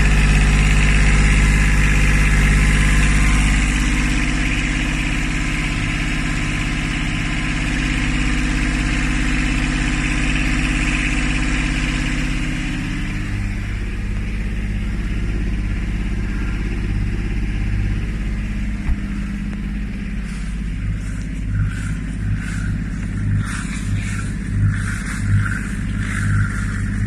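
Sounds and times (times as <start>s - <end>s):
boat engine idling: 0.0s - 27.0s
engine knock: 0.0s - 27.0s
exhaust water splashing: 0.0s - 27.0s.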